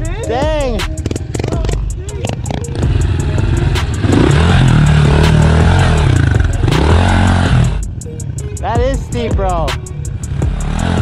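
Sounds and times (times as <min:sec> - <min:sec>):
motorbike engine revving: 0:00.7 - 0:08.4, 0:10.1 - 0:11.0.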